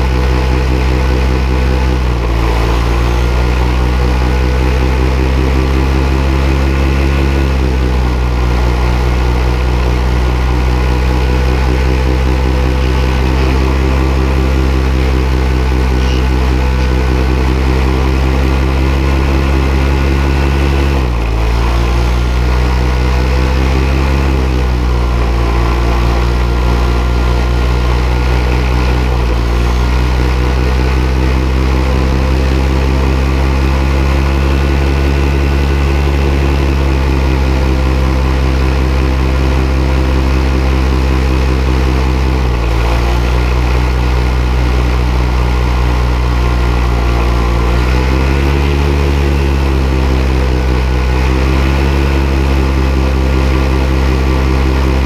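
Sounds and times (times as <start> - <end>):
paramotor engine and propeller: 0.0 - 55.0.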